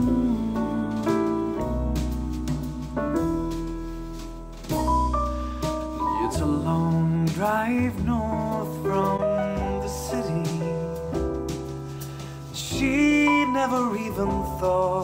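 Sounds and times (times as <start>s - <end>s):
piano-led pop song over speakers: 0.0s - 15.0s.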